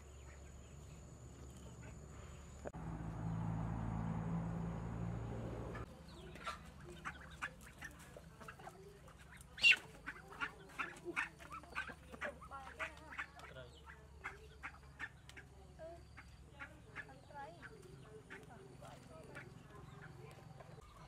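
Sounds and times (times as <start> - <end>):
chickens and ducks calling: 5.5 - 21.0.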